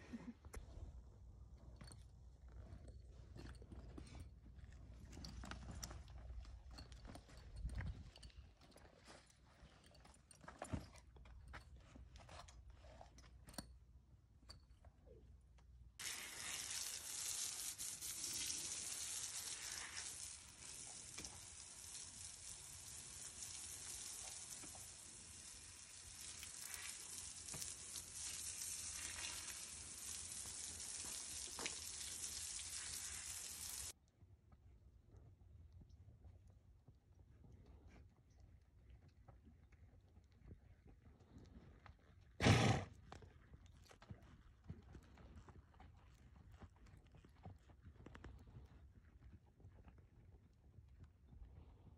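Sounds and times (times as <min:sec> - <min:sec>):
hose water spraying: 0:16.0 - 0:34.0.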